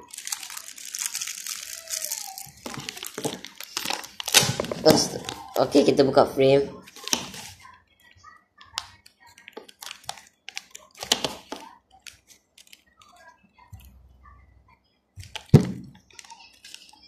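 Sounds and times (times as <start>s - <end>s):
plastic packaging crinkling: 0.0s - 5.9s, 8.7s - 13.2s, 15.2s - 17.0s.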